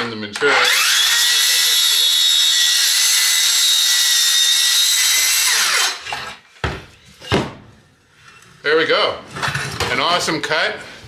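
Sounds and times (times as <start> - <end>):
circular saw cutting steel: 0.4 - 6.4.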